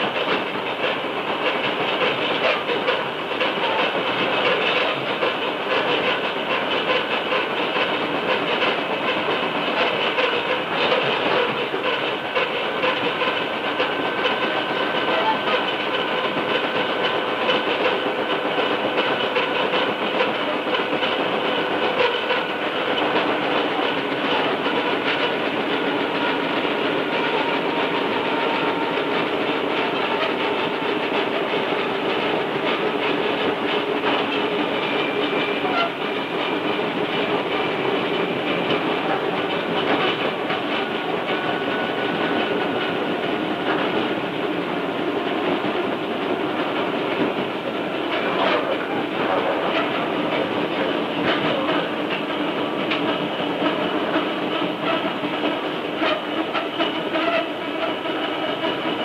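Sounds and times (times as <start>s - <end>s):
rhythmic wheel flat spot knocking: 0.0s - 59.0s
wheels clattering on rails: 0.0s - 59.0s
train motor gear whine: 21.2s - 33.4s.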